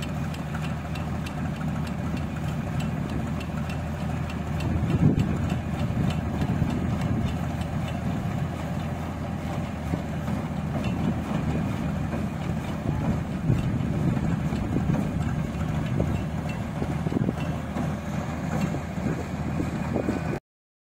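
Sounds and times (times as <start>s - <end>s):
harvester engine running: 0.0s - 20.4s.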